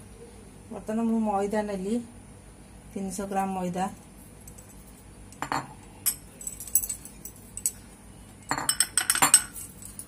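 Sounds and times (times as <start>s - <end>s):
kitchenware clinking on plate: 5.4s - 7.8s, 8.4s - 10.0s.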